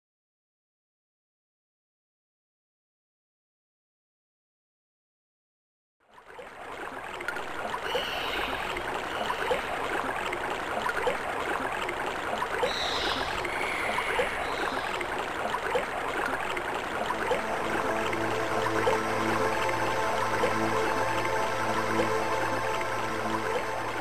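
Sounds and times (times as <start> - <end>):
sampled sea-wash noise: 6.1 - 24.0.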